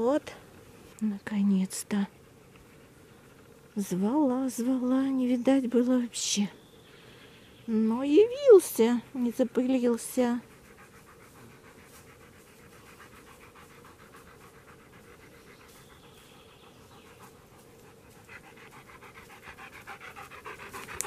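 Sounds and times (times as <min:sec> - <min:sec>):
dog panting rapidly: 0:08.2 - 0:21.0.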